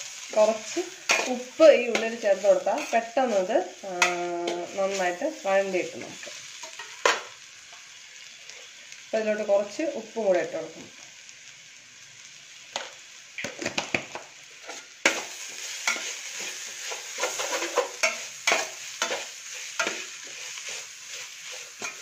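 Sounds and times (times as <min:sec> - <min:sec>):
onions sizzling in oil: 0:00.0 - 0:22.0
metal spoon scraping and stirring: 0:01.1 - 0:03.1, 0:15.8 - 0:22.0.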